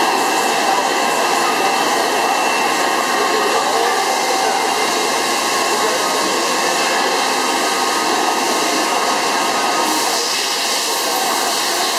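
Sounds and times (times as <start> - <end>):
drilling machine whirring: 0.0 - 11.9.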